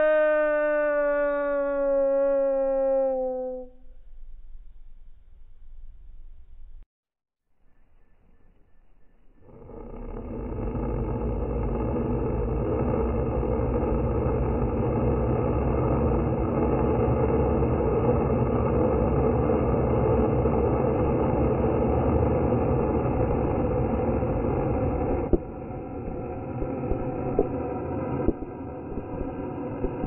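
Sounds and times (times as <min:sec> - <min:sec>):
slowed vulture hissing: 0:09.4 - 0:17.4.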